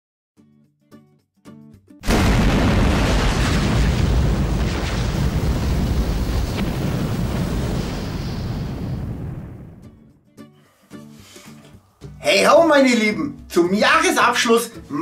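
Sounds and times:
explosion boom: 2.0s - 10.0s
rumble of fire: 2.1s - 10.0s.

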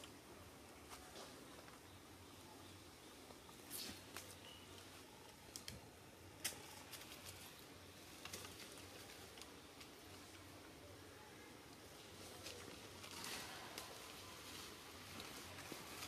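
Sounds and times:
twigs and dry leaves crackling: 6.4s - 10.6s, 12.0s - 16.0s.

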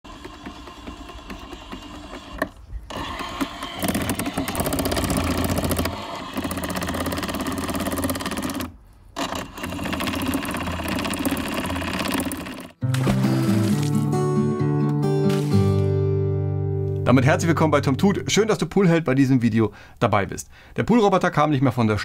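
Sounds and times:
pool robot motor rattling: 0.0s - 12.8s.

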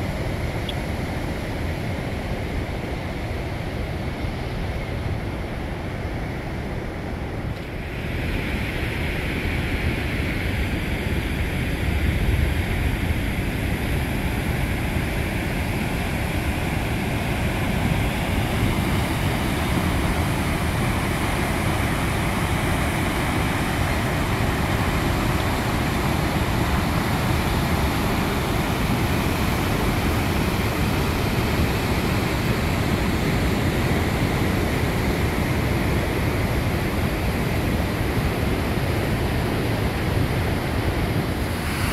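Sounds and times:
river rapids rushing: 15.2s - 41.9s.

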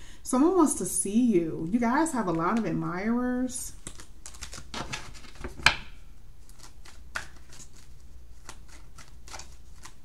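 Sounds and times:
cards being shuffled: 3.8s - 5.8s, 6.4s - 10.0s.

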